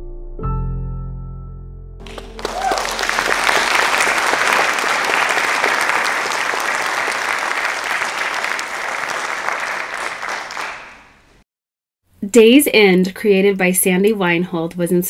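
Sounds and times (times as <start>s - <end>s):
audience applauding: 2.0s - 11.3s.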